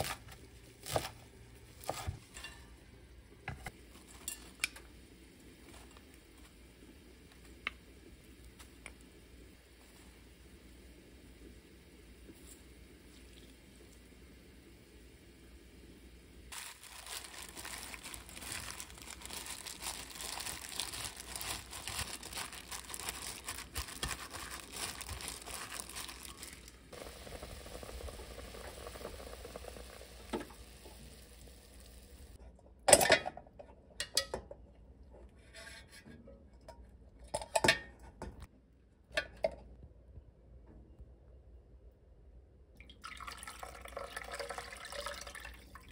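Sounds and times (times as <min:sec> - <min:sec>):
greens tossed in a metal bowl: 0:16.5 - 0:26.9.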